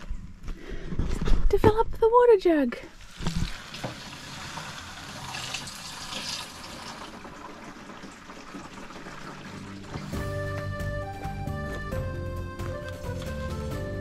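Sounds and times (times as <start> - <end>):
water pouring into plastic jug: 3.0 - 10.2
music: 9.4 - 14.0.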